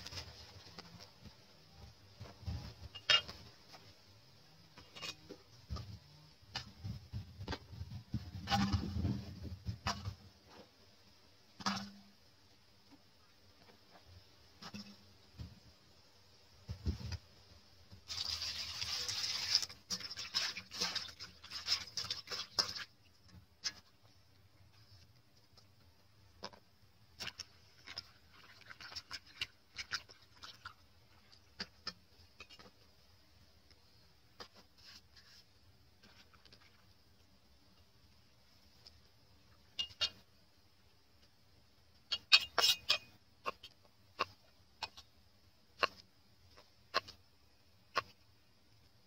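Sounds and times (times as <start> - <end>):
water splashing in plastic bowl: 18.0 - 23.9, 27.2 - 32.8.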